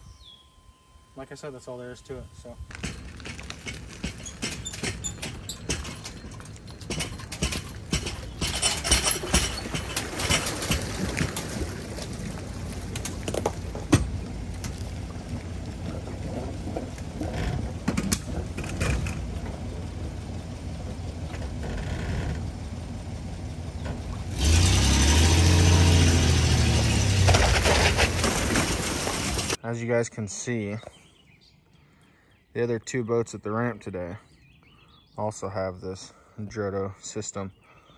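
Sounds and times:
sharp clicks and knocks: 2.7 - 11.5, 15.8 - 19.8
pickup truck engine running: 2.7 - 29.6
water rushing off trailer: 6.2 - 22.0, 23.8 - 29.6.

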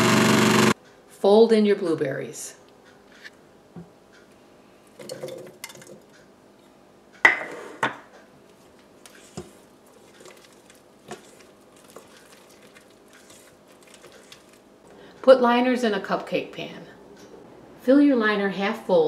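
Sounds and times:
spatula scraping metal bowl: 9.1 - 14.6.

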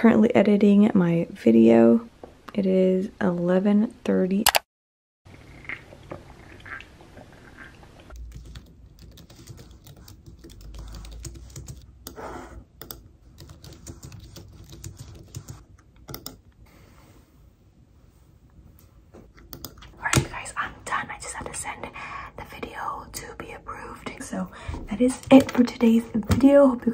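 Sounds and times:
typing on computer keyboard: 8.2 - 12.2, 12.8 - 16.4, 19.4 - 20.3, 25.1 - 25.7.

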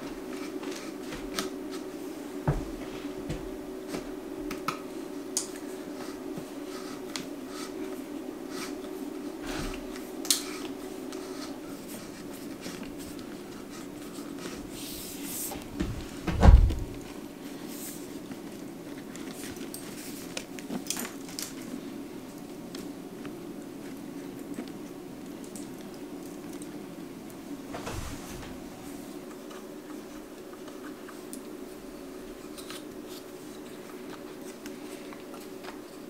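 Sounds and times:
steady low hum: 0.0 - 36.0
heavy thump: 15.8 - 17.0.

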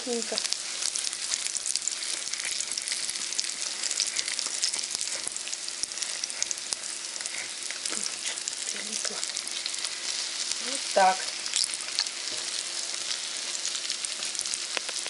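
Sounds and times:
pancakes sizzling in oil: 0.0 - 15.0.

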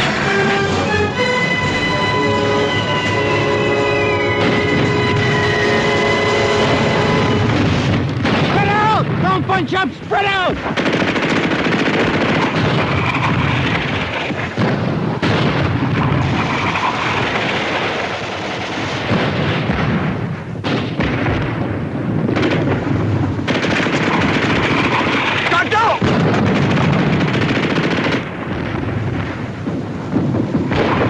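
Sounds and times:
battle gunfire: 4.3 - 31.0
machine-gun fire: 6.6 - 9.3, 10.6 - 21.6, 22.2 - 29.6, 30.5 - 31.0.

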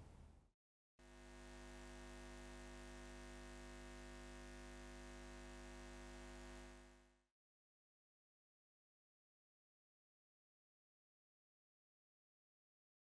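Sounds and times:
faint hum of held tones: 1.0 - 7.2.

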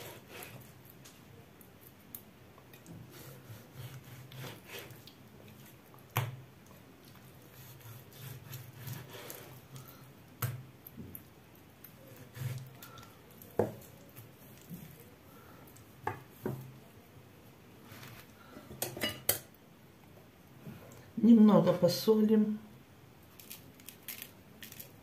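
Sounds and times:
knife slicing raw meat: 3.1 - 5.0, 7.4 - 9.6, 12.1 - 12.8.

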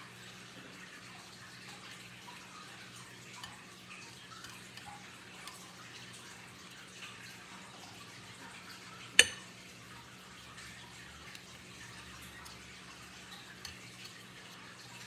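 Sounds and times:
metal spoon scraping in bowl: 11.2 - 15.0.

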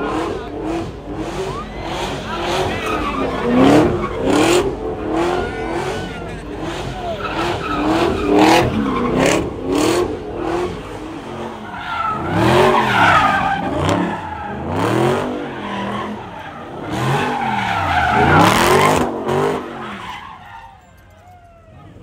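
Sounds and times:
car engine revving: 0.0 - 20.6
tyres squealing and skidding: 0.0 - 22.0.

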